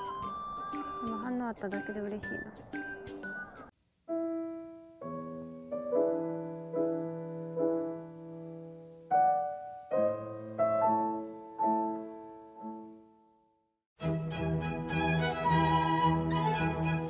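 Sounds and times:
slow piano chords: 0:04.1 - 0:13.5.

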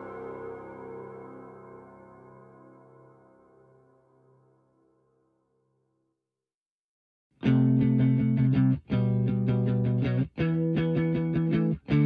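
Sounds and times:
guitar chords over a beat: 0:07.4 - 0:12.0.

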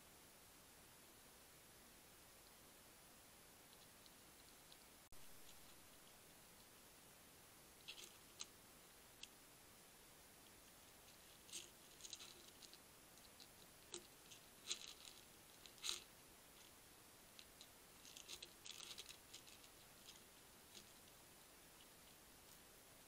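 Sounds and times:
steady hiss: 0:00.0 - 0:23.0
hedgehog crunching kibble: 0:07.8 - 0:08.5, 0:11.1 - 0:22.6.

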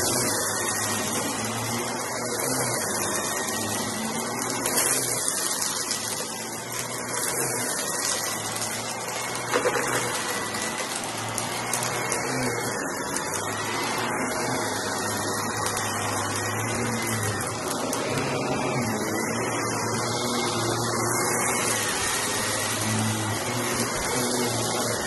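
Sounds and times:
vacuum cleaner whining: 0:00.0 - 0:25.0.

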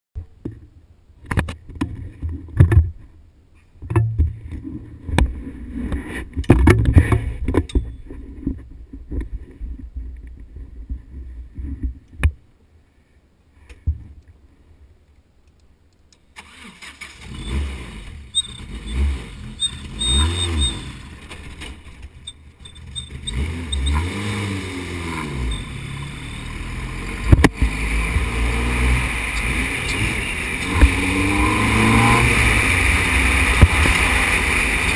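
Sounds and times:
race car engine with throttle blips: 0:16.1 - 0:34.9.

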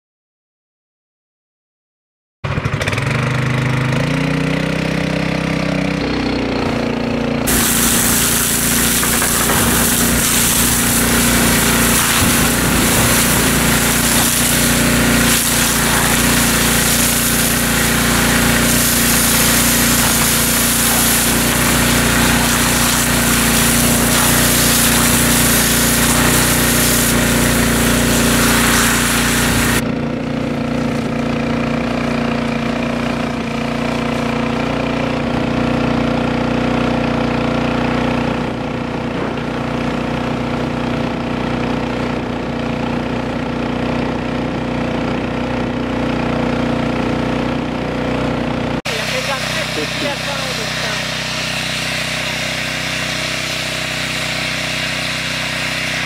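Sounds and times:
water pump engine running: 0:02.8 - 0:56.0
loud hiss of steam: 0:07.5 - 0:29.8.

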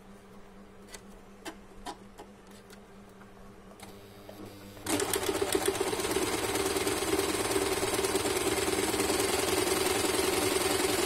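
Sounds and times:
sewing machine stitching: 0:04.8 - 0:11.0.

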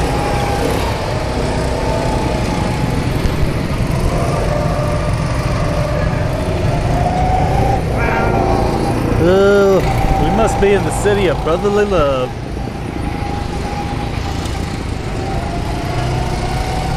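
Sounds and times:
go-kart engine revving: 0:00.0 - 0:16.9
low rumble: 0:03.2 - 0:11.6.

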